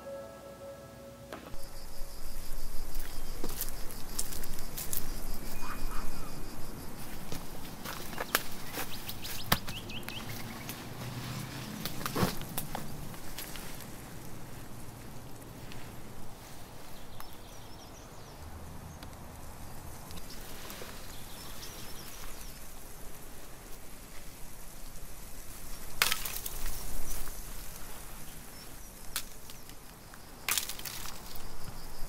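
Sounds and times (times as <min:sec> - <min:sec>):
outdoor background noise: 0:00.0 - 0:32.0
sharp cracks of branches: 0:07.8 - 0:10.8, 0:25.8 - 0:27.4, 0:29.1 - 0:31.5
sticks knocking and snapping: 0:09.4 - 0:10.2, 0:26.0 - 0:26.6, 0:30.5 - 0:31.4.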